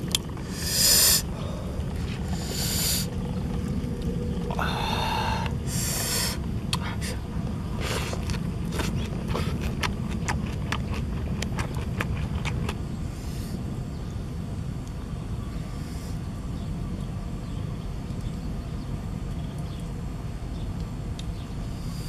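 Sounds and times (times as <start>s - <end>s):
steady low rumble: 0.0s - 22.0s
lettuce crunching while eaten: 7.8s - 12.9s.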